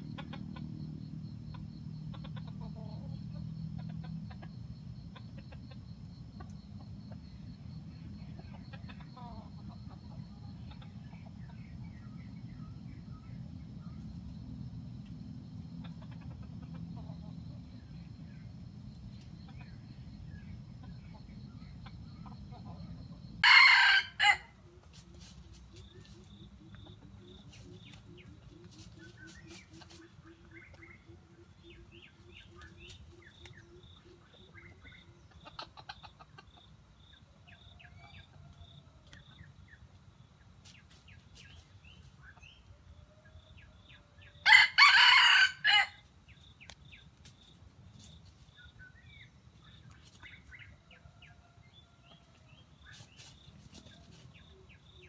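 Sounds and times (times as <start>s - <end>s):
rooster crowing: 23.4s - 24.6s, 44.2s - 46.0s
small birds chirping: 24.8s - 38.4s, 45.7s - 55.0s.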